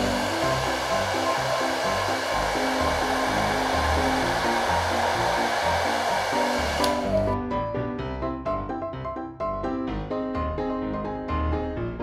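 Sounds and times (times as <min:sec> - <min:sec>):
hair dryer blowing: 0:00.0 - 0:07.4
background music: 0:00.0 - 0:12.0.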